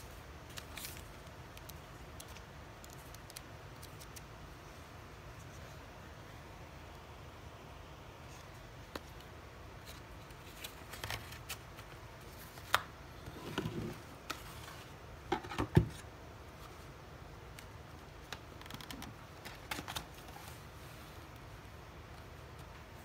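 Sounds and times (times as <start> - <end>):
paper rustle: 0.0 - 4.2.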